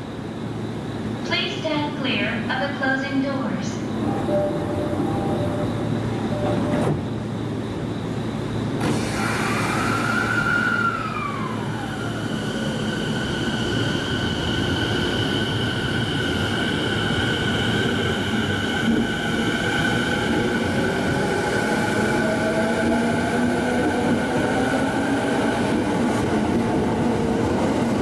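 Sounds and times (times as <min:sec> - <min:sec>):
electric train motor whine: 0:04.0 - 0:26.0.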